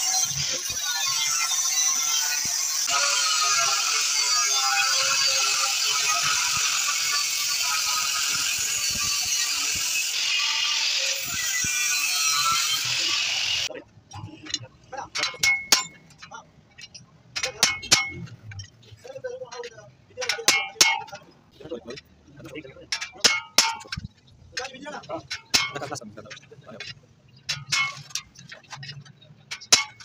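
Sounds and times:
angle grinder cutting steel: 0:00.0 - 0:13.7
hammer striking chisel on metal: 0:14.4 - 0:16.2, 0:16.8 - 0:18.4, 0:19.5 - 0:21.3, 0:22.9 - 0:24.7, 0:25.3 - 0:26.4, 0:29.5 - 0:30.0.

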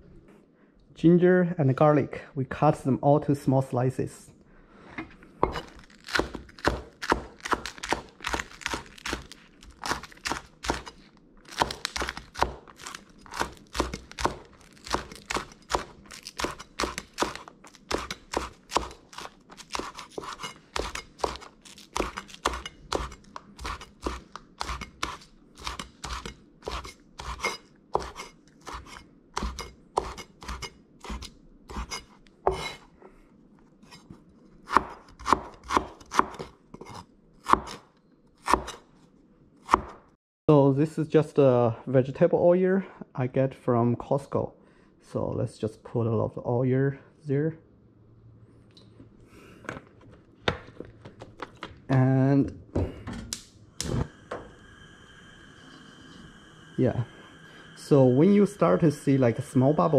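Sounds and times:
cleaver chopping on wooden board: 0:05.5 - 0:09.2, 0:11.5 - 0:12.6, 0:13.3 - 0:27.4, 0:28.0 - 0:32.7, 0:34.7 - 0:37.8, 0:38.4 - 0:38.8, 0:39.7 - 0:40.0.

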